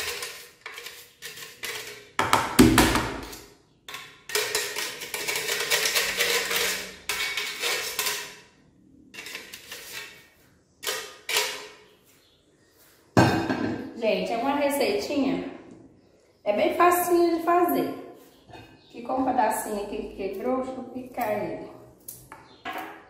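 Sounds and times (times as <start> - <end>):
seed rasping on metal grater: 0.0 - 2.1.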